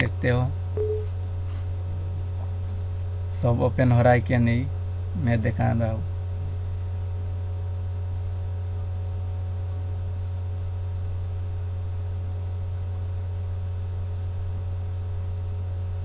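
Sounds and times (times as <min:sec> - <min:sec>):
steady low hum: 0:00.0 - 0:16.0
faint higher tones: 0:00.8 - 0:01.2.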